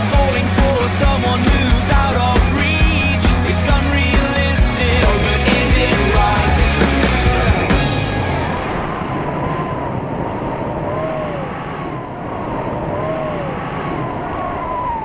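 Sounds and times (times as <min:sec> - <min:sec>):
faint rising and falling tones: 0:05.5 - 0:15.0
rushing wind: 0:06.8 - 0:15.0.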